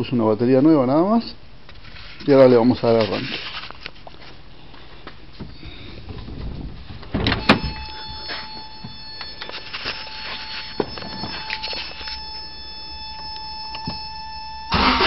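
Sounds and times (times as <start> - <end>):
high-pitched whine: 7.3 - 15.0.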